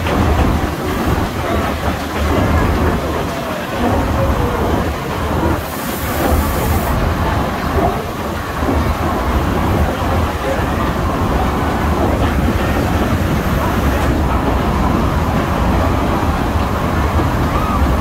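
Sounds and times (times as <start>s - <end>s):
steam train rumbling in tunnel: 0.0s - 18.0s
steam hiss: 5.3s - 8.7s.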